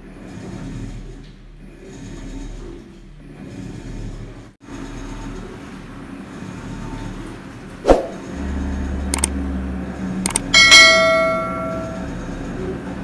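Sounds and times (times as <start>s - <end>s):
washing machine motor hum: 5.1s - 13.0s
sharp click: 10.3s - 10.8s.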